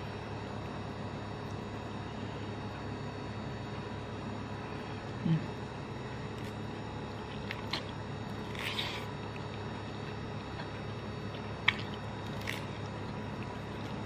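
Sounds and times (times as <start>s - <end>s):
steady low hum: 0.0s - 14.0s
noodle slurp: 7.6s - 9.6s
wet mouth clicks: 11.6s - 12.7s.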